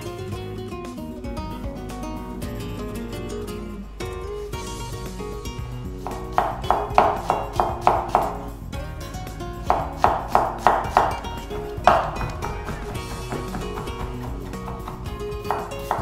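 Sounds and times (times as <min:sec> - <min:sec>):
acoustic guitar music: 0:00.0 - 0:16.0
knife chopping on wooden board: 0:06.1 - 0:08.5, 0:09.7 - 0:16.0.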